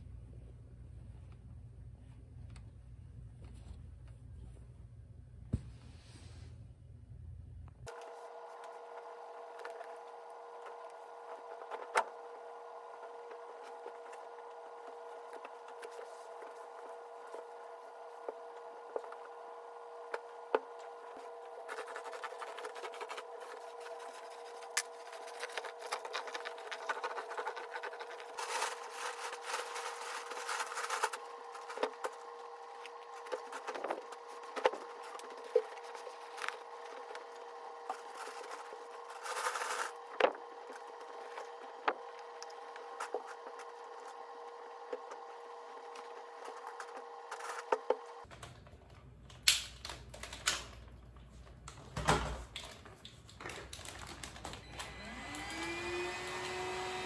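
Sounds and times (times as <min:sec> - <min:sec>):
machine hum: 0:06.9 - 0:49.2, 0:53.7 - 0:57.0
rustling: 0:20.6 - 0:41.6.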